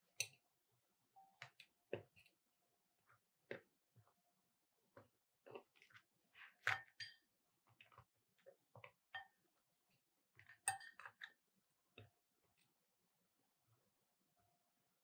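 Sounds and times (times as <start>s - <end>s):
fork clinking against ceramic bowl: 10.6s - 11.1s.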